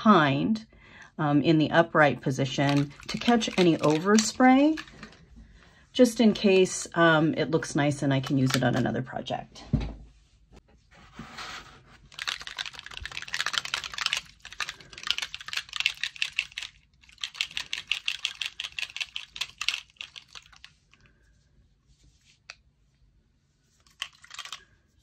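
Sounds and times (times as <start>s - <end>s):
spray bottle rattling when shaken: 2.6s - 5.2s, 12.1s - 20.9s, 23.8s - 24.8s.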